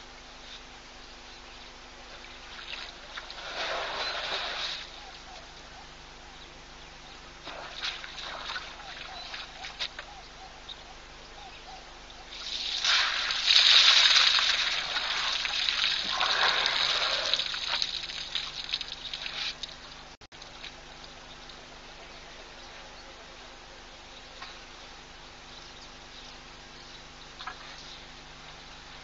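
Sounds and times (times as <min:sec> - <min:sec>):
water sloshing and trickling: 0:02.2 - 0:05.0, 0:07.4 - 0:09.9, 0:12.3 - 0:20.8.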